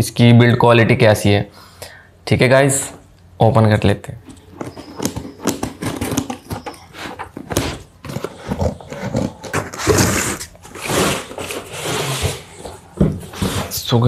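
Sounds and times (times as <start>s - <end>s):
carton scraping and rustling: 4.3s - 14.0s.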